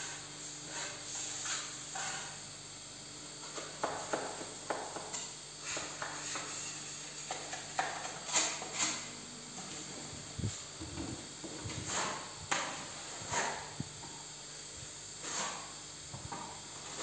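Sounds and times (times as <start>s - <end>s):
metal spatula scraping plaster: 0.0s - 2.4s, 3.4s - 10.0s, 11.4s - 13.8s, 15.2s - 17.0s.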